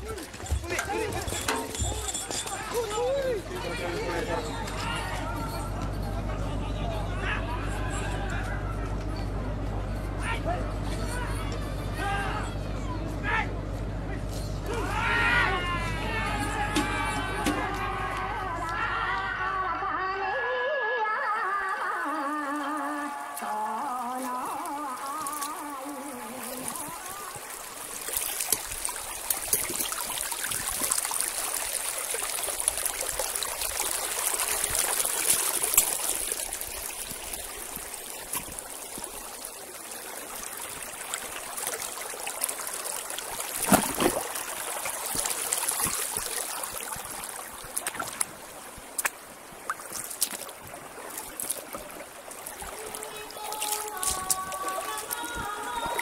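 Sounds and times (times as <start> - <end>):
stream running over rocks: 0.0 - 5.8, 21.3 - 56.0
water splash: 21.6 - 56.0.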